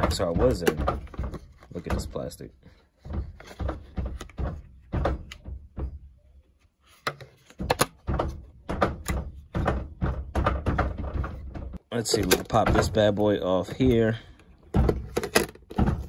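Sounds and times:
plastic phone case thunks and clicks: 7.0s - 9.8s.

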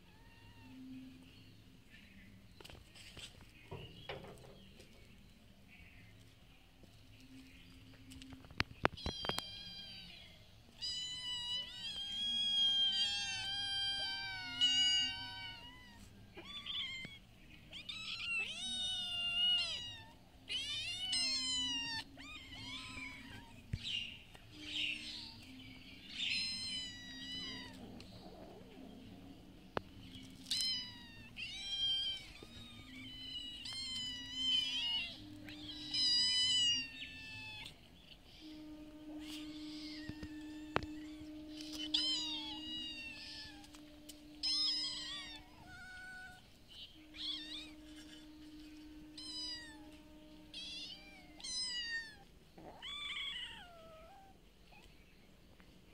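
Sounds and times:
kittens meowing: 8.8s - 28.7s, 30.1s - 54.9s.

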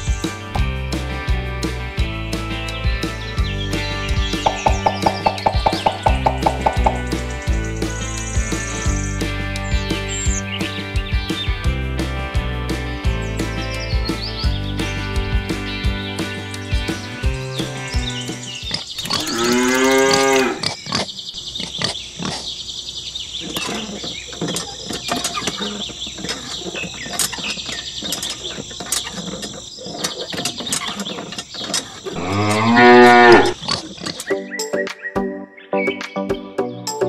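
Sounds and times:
cow mooing: 19.1s - 20.8s, 32.1s - 33.6s.

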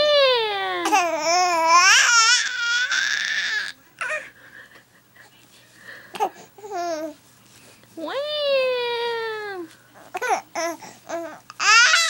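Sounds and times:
baby wailing: 0.8s - 4.3s, 10.0s - 12.0s.

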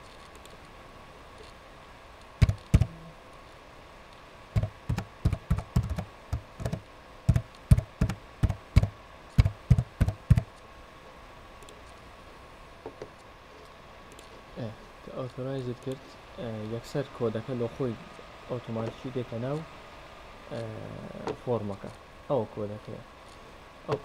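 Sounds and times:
keyboard typing: 2.4s - 3.0s, 4.6s - 10.5s.

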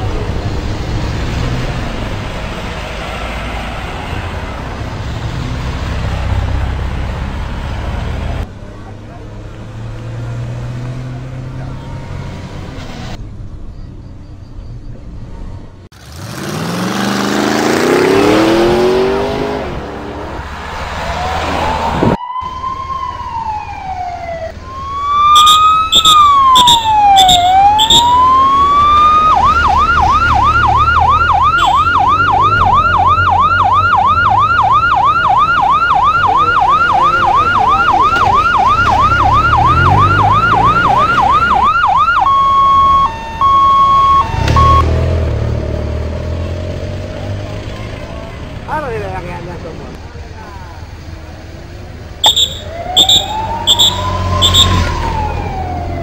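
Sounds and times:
vehicle passing: 0.0s - 13.6s, 14.9s - 56.0s
police siren wailing and yelping: 21.0s - 44.9s, 52.2s - 56.0s.

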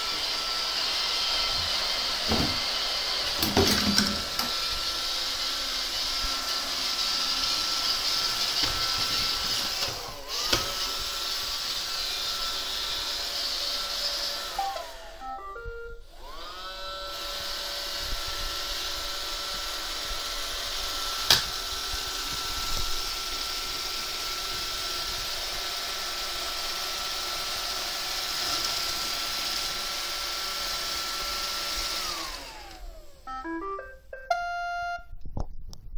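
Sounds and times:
robot vacuum motor whine: 0.0s - 33.6s
short electronic beeps: 33.3s - 35.1s.

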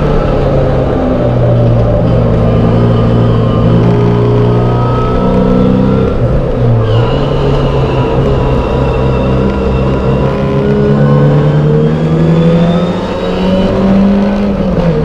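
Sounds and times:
race car engine at high revs: 0.0s - 15.0s.

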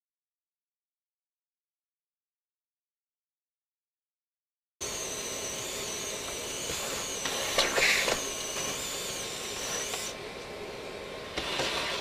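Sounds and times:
spindle cutting wood whine: 4.8s - 10.2s
vacuum hose sucking: 4.8s - 10.2s.

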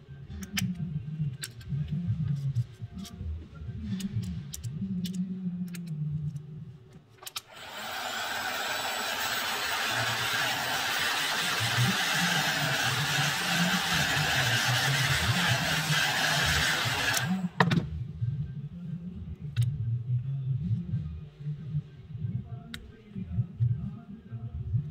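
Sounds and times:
heat gun blowing air: 7.5s - 17.6s.

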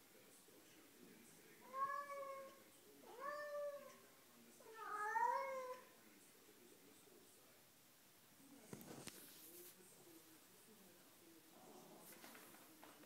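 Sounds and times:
cat meowing: 1.6s - 4.0s, 4.6s - 5.9s.

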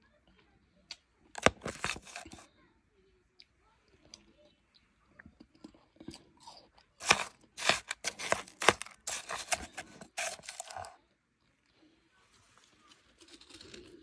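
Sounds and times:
person chewing crushed ice: 1.3s - 2.4s, 5.4s - 11.0s, 12.9s - 14.0s.

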